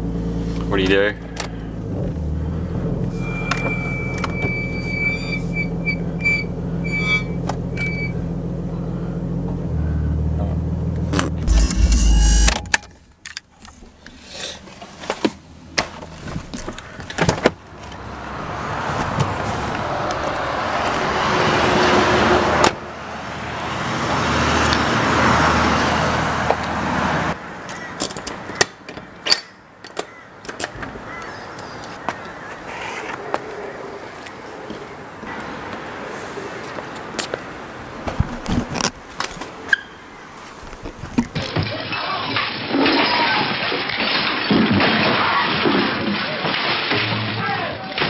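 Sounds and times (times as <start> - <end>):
car engine running: 0.0 - 13.2
vehicles passing on wet road: 17.6 - 27.7, 30.9 - 38.1.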